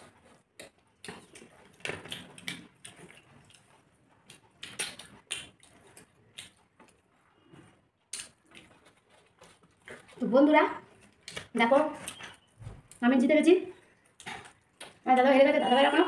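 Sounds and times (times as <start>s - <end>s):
chewing and lip-smacking: 0.0s - 13.0s, 13.7s - 15.3s.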